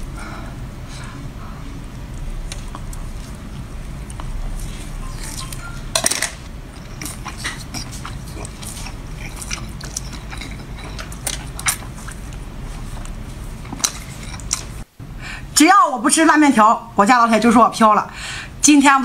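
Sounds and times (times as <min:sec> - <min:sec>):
low steady hum: 0:00.0 - 0:19.0
wet chewing crunches: 0:01.9 - 0:05.9, 0:06.5 - 0:14.9.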